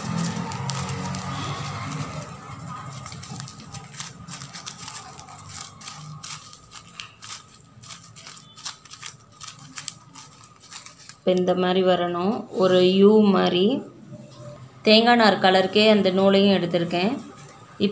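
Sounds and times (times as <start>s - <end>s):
newspaper crinkling: 0.0s - 11.5s.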